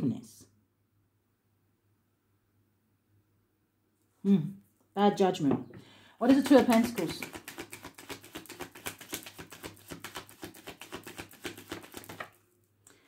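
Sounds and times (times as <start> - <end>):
cards being shuffled: 6.2 - 12.5.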